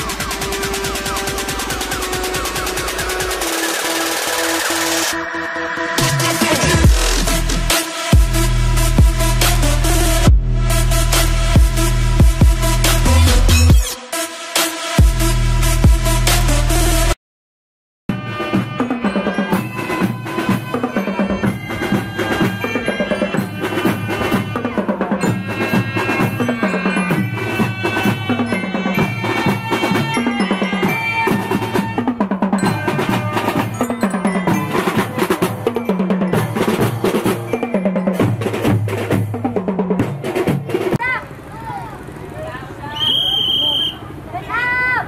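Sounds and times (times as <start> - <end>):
bass and snare drums: 6.0 - 14.0, 15.0 - 17.2, 31.2 - 41.0
glockenspiel melody: 18.7 - 38.6.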